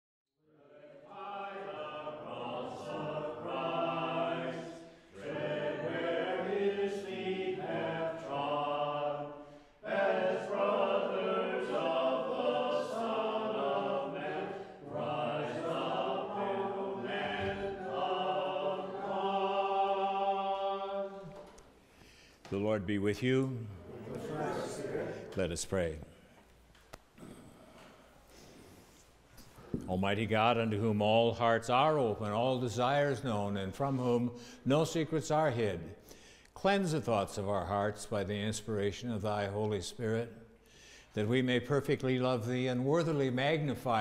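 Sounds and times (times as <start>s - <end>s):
voices singing a chant: 0.4s - 21.6s, 22.6s - 25.5s.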